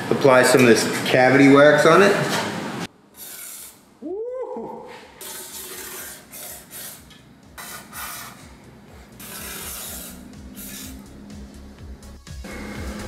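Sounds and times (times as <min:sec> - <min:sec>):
aerosol spray hissing: 0:07.6 - 0:08.5, 0:09.1 - 0:11.2.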